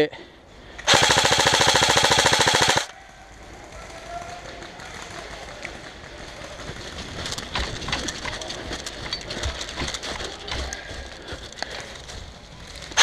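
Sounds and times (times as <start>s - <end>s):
running footsteps in dry leaves: 3.4s - 13.0s.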